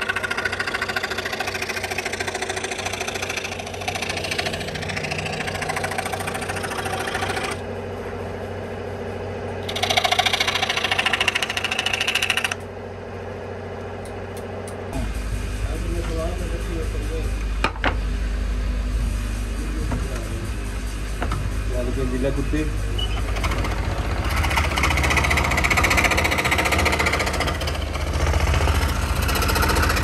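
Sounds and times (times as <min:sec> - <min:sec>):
electric power tool buzzing: 0:09.6 - 0:12.6.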